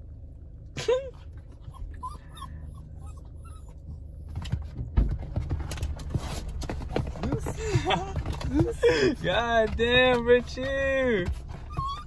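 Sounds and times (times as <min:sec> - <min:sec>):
outdoor noise: 0:00.0 - 0:12.0
dog whimpering: 0:00.9 - 0:04.1, 0:11.5 - 0:12.0.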